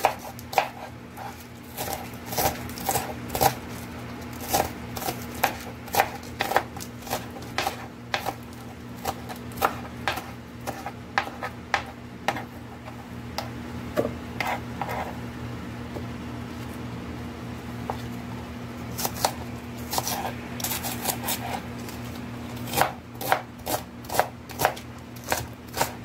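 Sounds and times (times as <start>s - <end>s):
knife chopping on cutting board: 0.0s - 3.6s, 4.4s - 15.1s, 19.0s - 21.7s, 22.6s - 26.0s.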